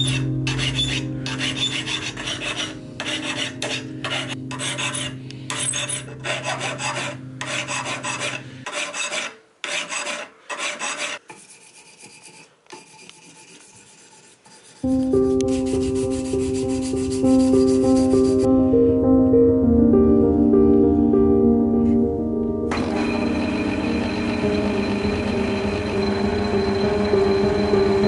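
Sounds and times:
hand file rasping on metal: 0.0s - 14.9s.

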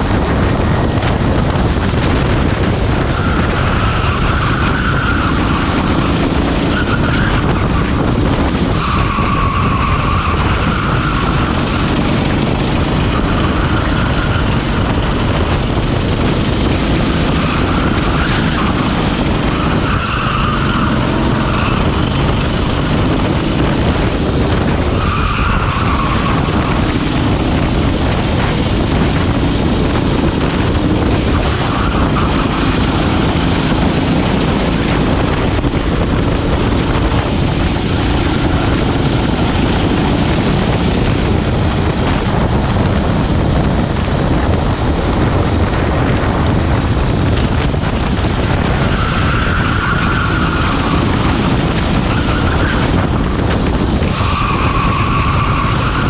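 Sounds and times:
go-kart engine racing: 0.0s - 56.0s
wind rushing: 0.0s - 56.0s
tyres squealing: 17.3s - 22.1s, 24.9s - 27.0s, 48.8s - 53.0s, 54.0s - 56.0s.

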